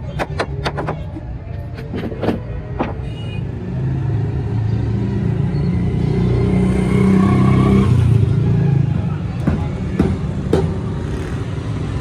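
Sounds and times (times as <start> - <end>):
traffic engine rumble: 0.0 - 6.6, 7.3 - 12.0
hammer knocks on wood: 9.4 - 10.8.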